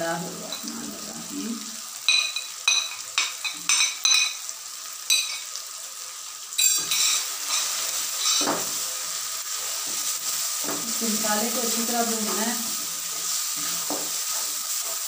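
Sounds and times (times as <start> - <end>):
frying sizzle: 0.0 - 15.0
spices clinking from dish: 2.0 - 4.5, 5.1 - 5.5, 6.6 - 8.6
spatula stirring in pot: 11.8 - 15.0.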